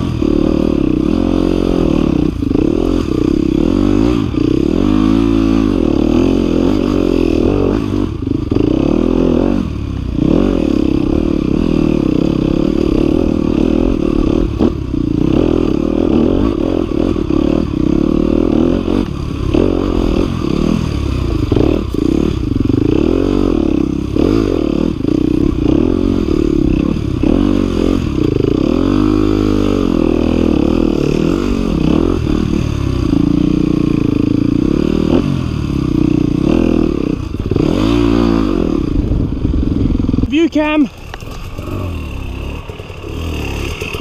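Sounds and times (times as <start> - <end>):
dirt bike engine revving: 0.0 - 44.0
knocks and clatter over rocks: 40.9 - 44.0.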